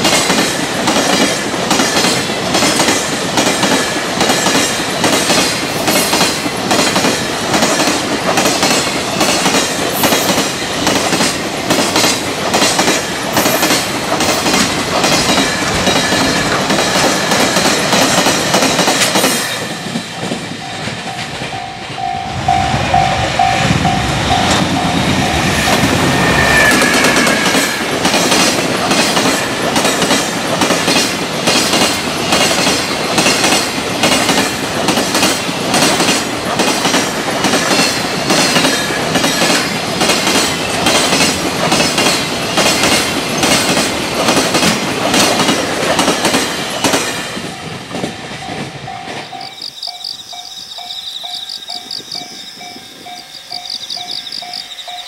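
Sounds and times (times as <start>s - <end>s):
train wheels clacking over rail joints: 0.0s - 22.1s, 23.8s - 50.4s
level-crossing bell ringing: 20.1s - 26.8s, 48.5s - 55.0s
high squeal: 22.1s - 27.9s, 49.2s - 55.0s.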